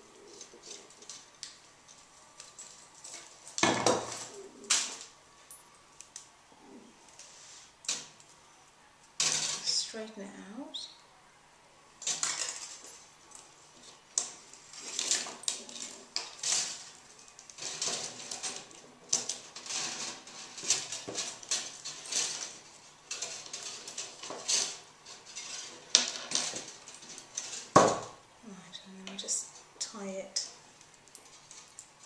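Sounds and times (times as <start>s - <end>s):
metal wire clicks and scrapes: 0.0s - 6.3s, 12.0s - 28.2s, 29.1s - 32.0s.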